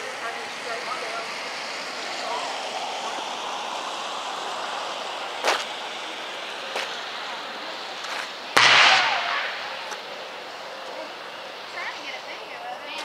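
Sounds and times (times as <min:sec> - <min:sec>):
electrical arcing cracks: 0:08.0 - 0:12.0.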